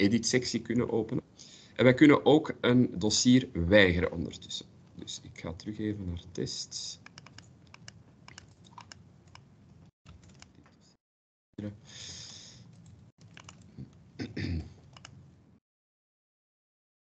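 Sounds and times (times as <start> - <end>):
keyboard typing: 7.0 - 9.5, 10.1 - 10.8, 12.7 - 14.0, 14.8 - 15.2
mouse clicks: 7.0 - 9.5, 12.8 - 13.7, 14.9 - 15.2.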